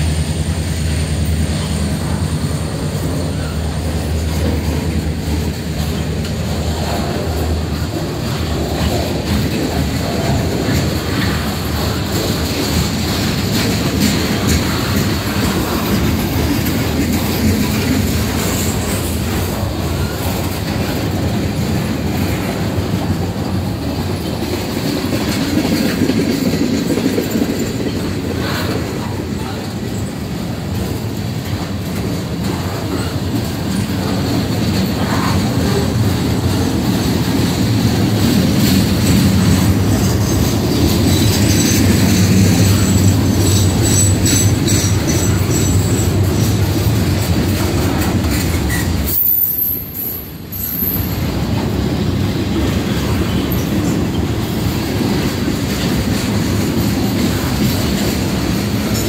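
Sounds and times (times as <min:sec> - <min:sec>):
freight cars clanking: 0:00.0 - 0:59.0
train wheels rumbling on rails: 0:00.0 - 0:59.0
faint high wheel squeal: 0:40.0 - 0:46.4, 0:48.6 - 0:51.2.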